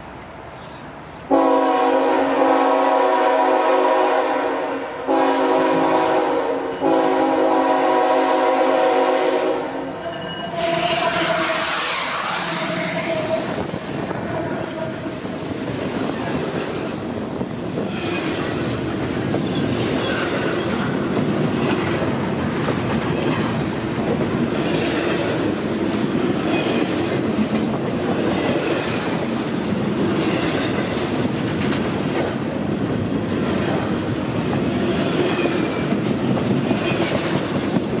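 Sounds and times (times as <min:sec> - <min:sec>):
freight train wheels clacking: 0:09.0 - 0:38.0.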